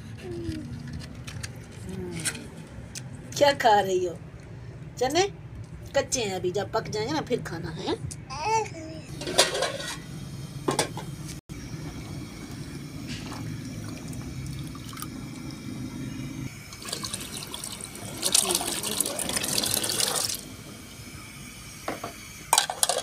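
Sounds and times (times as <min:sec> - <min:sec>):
low steady hum: 0:00.0 - 0:21.8
chickpeas and water poured into pot: 0:16.8 - 0:20.4.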